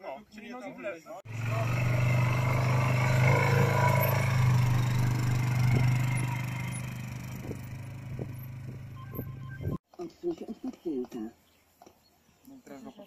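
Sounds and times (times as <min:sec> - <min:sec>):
quad bike engine running: 0:01.3 - 0:09.8.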